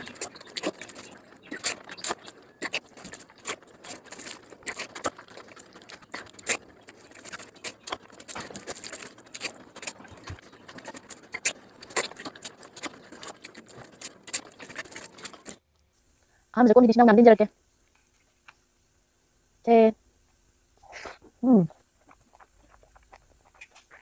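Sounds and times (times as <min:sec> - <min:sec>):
chewing and lip-smacking: 0:00.0 - 0:15.6, 0:20.8 - 0:24.0.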